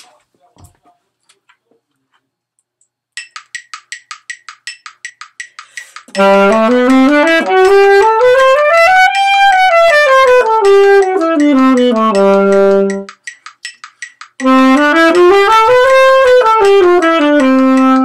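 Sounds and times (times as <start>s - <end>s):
fast even ticking: 3.2s - 8.2s, 9.1s - 15.4s
alto saxophone playing scale: 6.2s - 13.1s, 14.4s - 18.0s.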